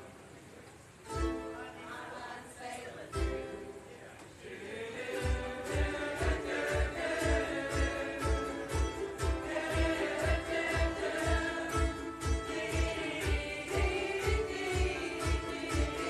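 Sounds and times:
strummed ukuleles: 0:00.9 - 0:16.0
women singing together: 0:01.6 - 0:03.7, 0:04.4 - 0:16.0
low steady beat: 0:05.2 - 0:16.0.

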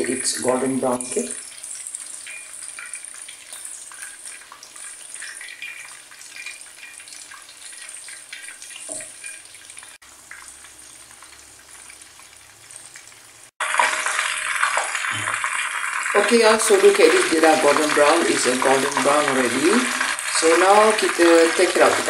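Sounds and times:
prawns deep-frying in oil: 0:00.0 - 0:22.0.

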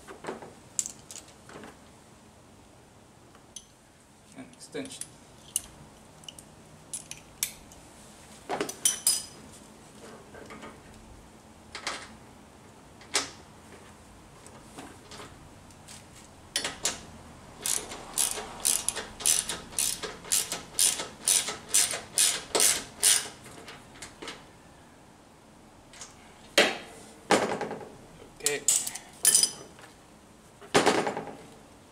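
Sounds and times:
socket ratchet clicking: 0:17.6 - 0:23.4.

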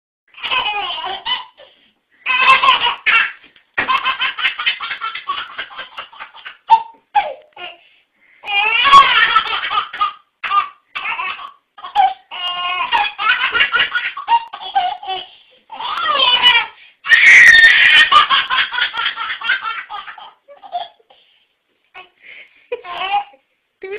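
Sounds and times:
baby laughing: 0:00.4 - 0:07.8, 0:08.5 - 0:21.2, 0:22.7 - 0:23.4.

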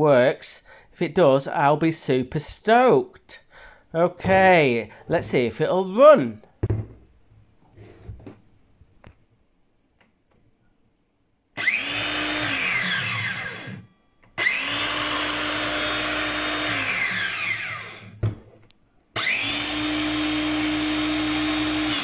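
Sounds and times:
circular saw running: 0:11.6 - 0:13.8, 0:14.4 - 0:18.1, 0:19.2 - 0:22.0
saw winding down with falling whine: 0:11.6 - 0:18.1, 0:19.2 - 0:22.0.

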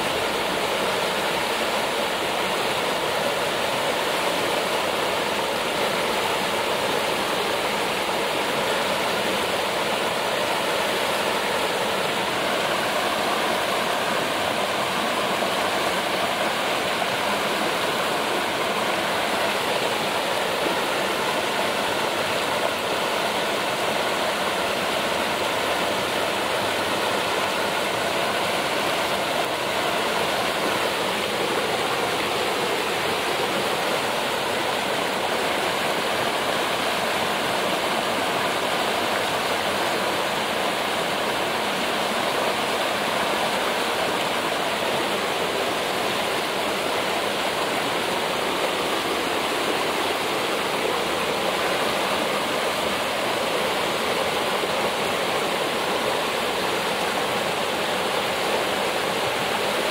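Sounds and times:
stream flowing over rock: 0:00.0 - 0:59.9.

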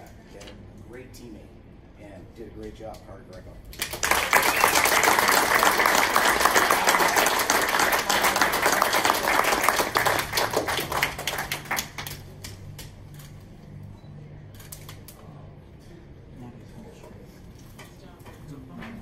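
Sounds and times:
audience applauding: 0:03.8 - 0:12.5.

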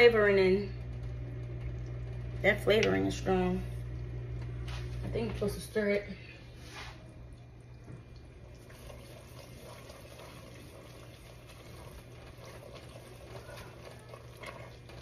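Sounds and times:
low hum: 0:00.0 - 0:08.7
syrup bubbling and crackling: 0:00.8 - 0:04.6, 0:06.6 - 0:15.0.

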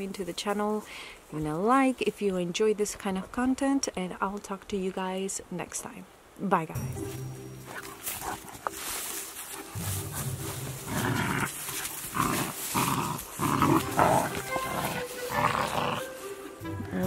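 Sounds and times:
dogs growling: 0:09.6 - 0:16.2.

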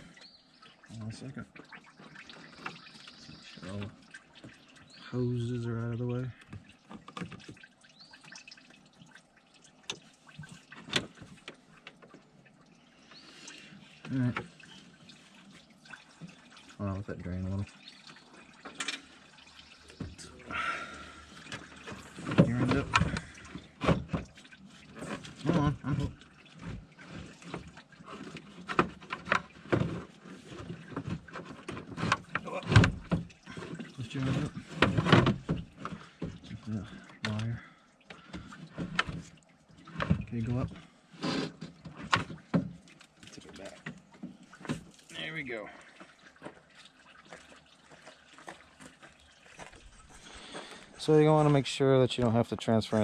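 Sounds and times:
coolant dripping: 0:00.0 - 0:53.0
knocks and clunks of parts: 0:21.5 - 0:24.4, 0:27.4 - 0:36.4.

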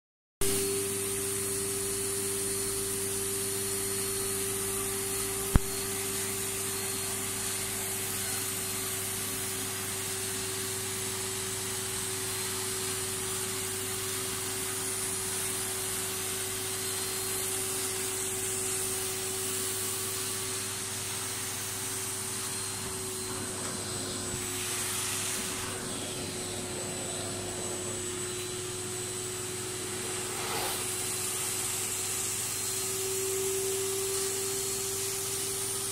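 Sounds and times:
carpet extraction machine whine: 0:00.4 - 0:35.9
rushing air and water hiss: 0:24.2 - 0:26.1, 0:29.7 - 0:32.4.

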